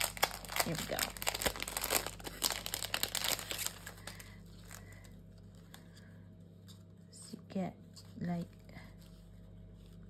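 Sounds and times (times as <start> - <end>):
plastic packet crinkling: 0.0 - 5.8.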